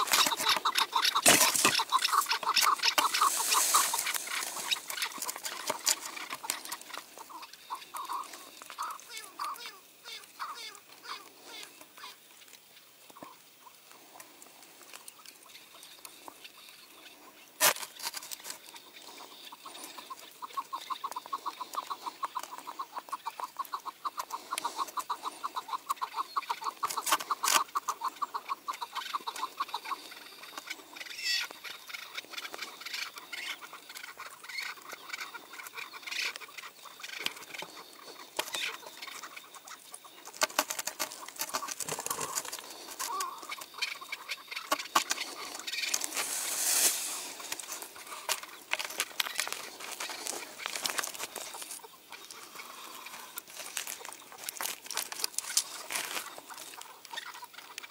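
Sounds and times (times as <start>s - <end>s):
partridge calling: 0.0s - 14.0s, 15.0s - 54.6s, 55.2s - 57.9s.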